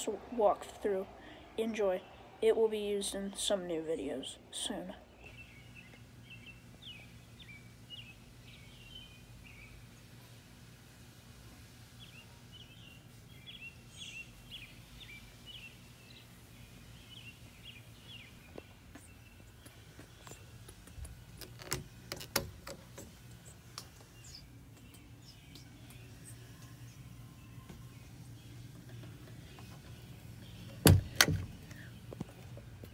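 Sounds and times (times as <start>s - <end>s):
birds chirping: 0.0s - 10.4s, 11.9s - 32.9s
low steady hum: 0.0s - 32.9s
wooden door latch clicking: 30.8s - 31.6s.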